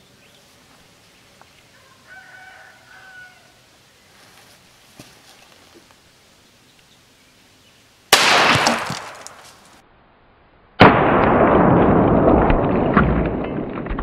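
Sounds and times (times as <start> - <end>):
pistol shot: 8.1 - 9.4, 10.8 - 12.6
slowed low gunshot: 8.2 - 9.4, 10.8 - 14.0.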